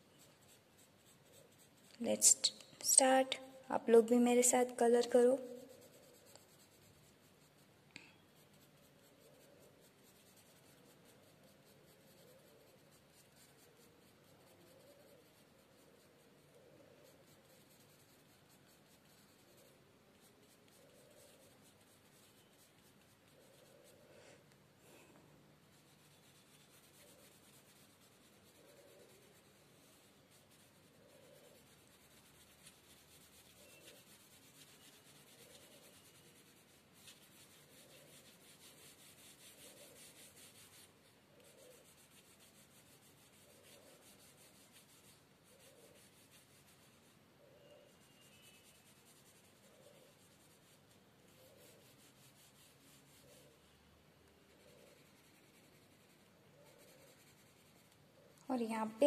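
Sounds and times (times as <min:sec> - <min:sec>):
pencil scratching on paper: 0:00.0 - 0:59.0.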